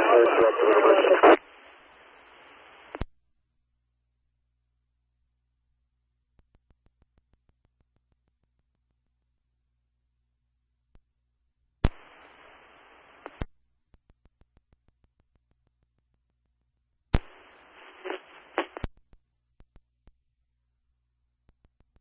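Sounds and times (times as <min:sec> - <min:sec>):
radio open-mic hiss: 0:00.0 - 0:03.1, 0:11.8 - 0:13.5, 0:17.2 - 0:18.9
radio keying clicks: 0:17.2 - 0:18.9.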